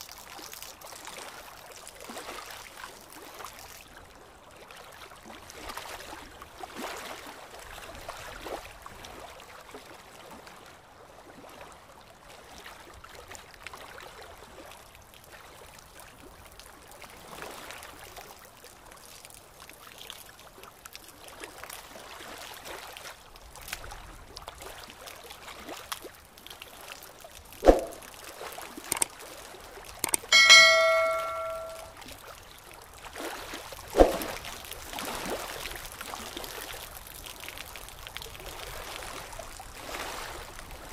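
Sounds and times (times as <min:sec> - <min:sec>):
bell-like ding: 0:30.1 - 0:31.9
sharp knocks: 0:30.1 - 0:31.9.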